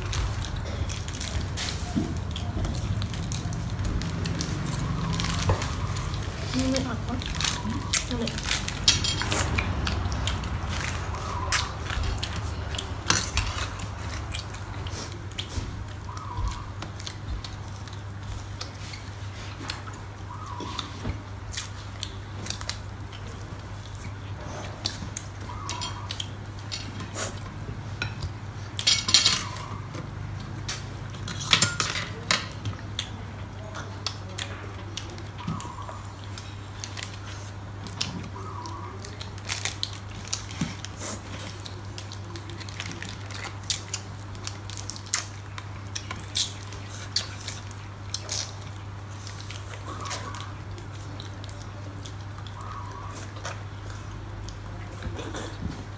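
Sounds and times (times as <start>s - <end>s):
steady low hum: 0.0s - 55.9s
cutlery clattering: 31.4s - 32.5s.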